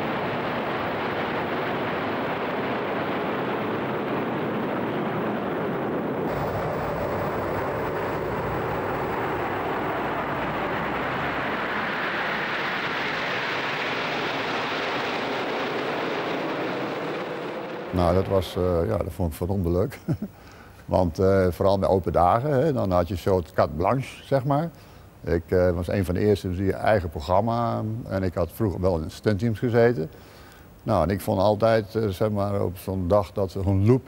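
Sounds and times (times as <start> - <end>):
jet fighters flying overhead: 0.0 - 18.9.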